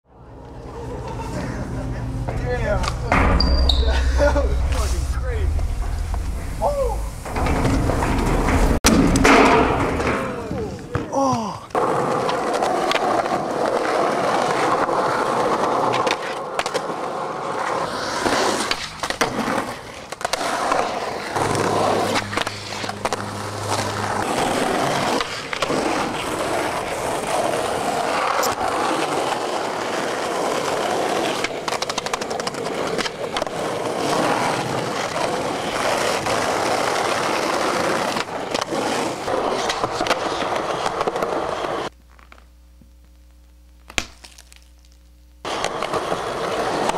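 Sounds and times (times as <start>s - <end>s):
skateboard wheels rolling on concrete: 0.2s - 42.5s, 43.8s - 46.9s
skateboard tail pops and clacks: 11.7s - 17.1s, 18.1s - 42.4s, 43.8s - 44.6s, 45.5s - 46.9s.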